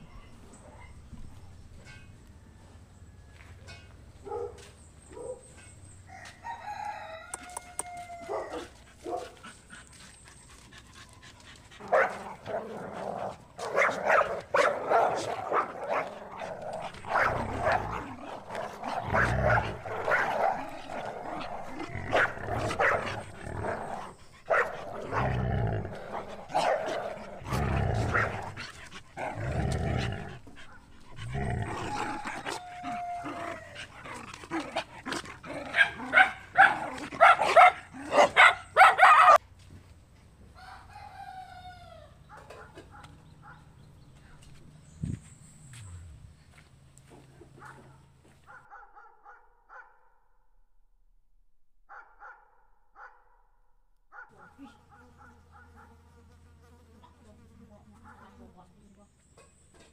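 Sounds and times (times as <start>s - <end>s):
small dog barking and yipping: 7.5s - 9.4s, 35.7s - 39.4s.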